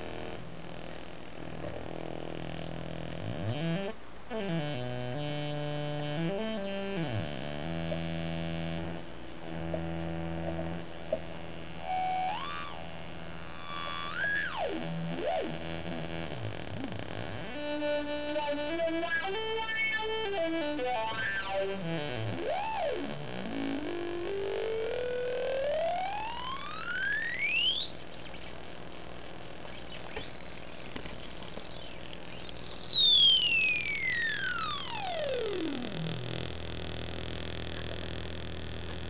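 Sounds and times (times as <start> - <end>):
synthesizer notes stepping in pitch: 2.5 - 12.8, 13.6 - 28.1, 31.7 - 36.9
synthesizer pitch sweep: 31.7 - 36.8.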